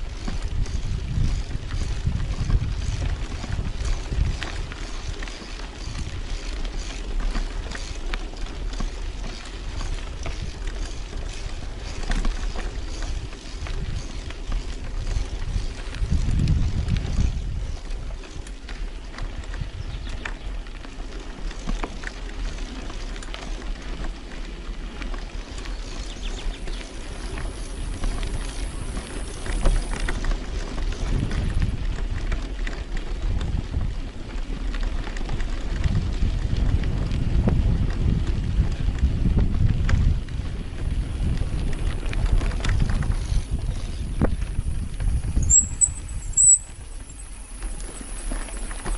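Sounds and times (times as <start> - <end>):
bicycle clicks and rattles: 0.0 - 48.9
wind rumbling on microphone: 0.0 - 48.9.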